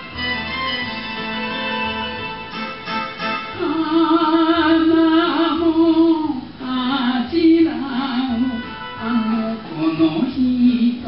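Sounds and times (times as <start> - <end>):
backing accompaniment: 0.0 - 11.0
person singing with vibrato: 3.4 - 11.0.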